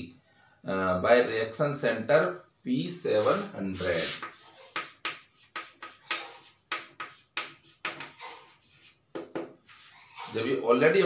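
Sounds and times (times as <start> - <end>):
chalk tapping and scraping: 3.2 - 10.0.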